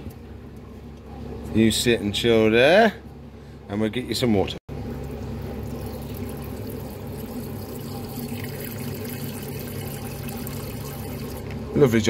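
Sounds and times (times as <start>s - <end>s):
water pouring into a bowl: 5.0s - 11.5s.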